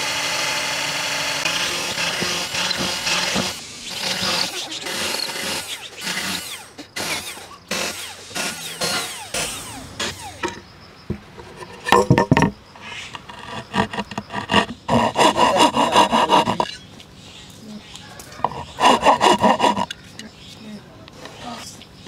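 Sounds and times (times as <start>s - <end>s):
cordless drill boring into wood: 0.0s - 10.5s, 13.1s - 16.8s, 18.4s - 20.0s
saw cutting through board: 0.0s - 10.5s, 12.9s - 16.8s, 18.4s - 20.0s.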